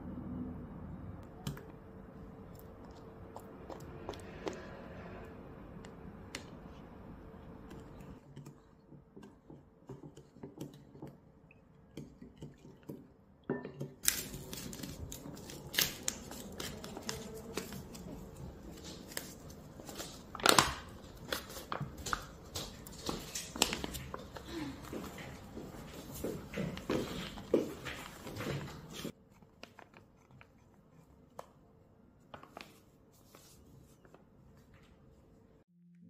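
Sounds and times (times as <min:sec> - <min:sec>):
stiff paper bag tearing and crinkling: 0:14.0 - 0:18.0.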